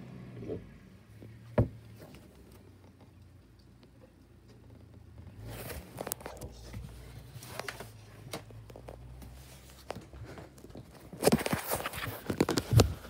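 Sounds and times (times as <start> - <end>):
heavy thumps: 1.5 - 2.2.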